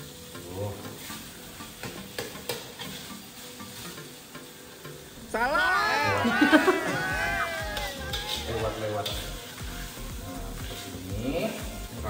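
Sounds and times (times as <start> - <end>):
food sizzling in a wok: 0.0 - 12.0
metal spatula scraping a wok: 1.0 - 4.2, 8.0 - 11.9.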